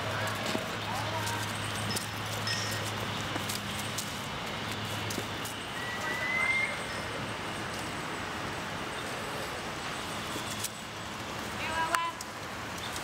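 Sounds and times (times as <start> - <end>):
outdoor background noise: 0.0 - 13.0
thin rising whistle: 5.8 - 7.2.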